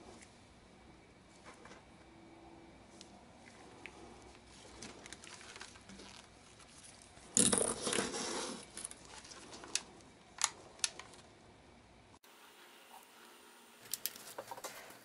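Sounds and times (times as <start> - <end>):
solder wire rustling scrape: 7.7 - 10.0.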